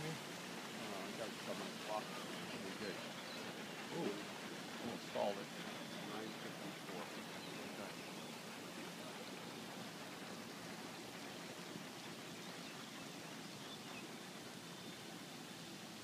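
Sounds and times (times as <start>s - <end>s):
fountain spray splashing on water: 0.0s - 16.0s.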